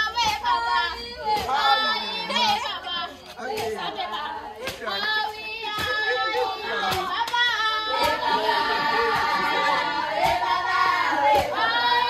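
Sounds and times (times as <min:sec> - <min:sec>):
women and girls singing in unison: 0:00.0 - 0:12.0
sharp claps or stamps: 0:06.7 - 0:08.2.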